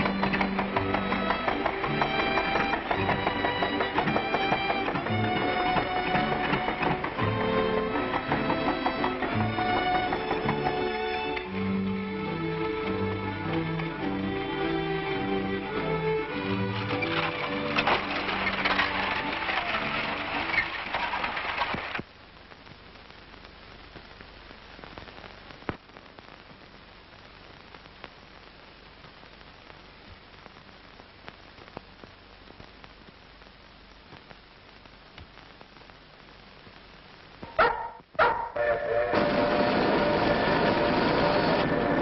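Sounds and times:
background music: 0:00.0 - 0:21.3, 0:37.4 - 0:42.0
film soundtrack hiss: 0:00.0 - 0:42.0
faint clicks: 0:16.7 - 0:38.1.

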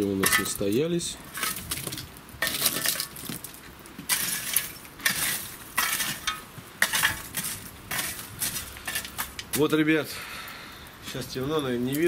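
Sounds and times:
metal tool scraping charcoal: 0:00.0 - 0:09.8.

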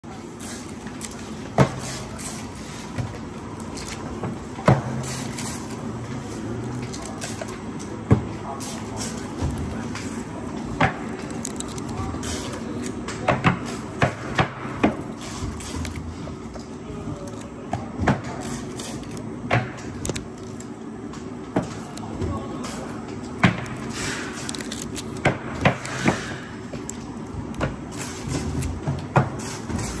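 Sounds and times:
factory background noise: 0:00.0 - 0:30.0
steady low hum: 0:00.0 - 0:30.0
foil tape crinkling and snapping: 0:03.5 - 0:04.3, 0:04.9 - 0:08.0, 0:08.8 - 0:13.0, 0:15.0 - 0:16.2, 0:18.3 - 0:19.3, 0:19.9 - 0:20.7, 0:21.7 - 0:27.1.

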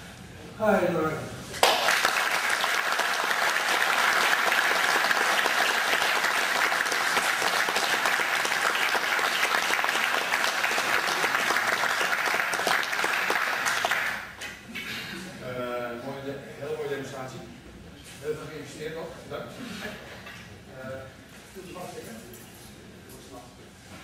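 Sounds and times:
audience applauding: 0:01.6 - 0:14.3.

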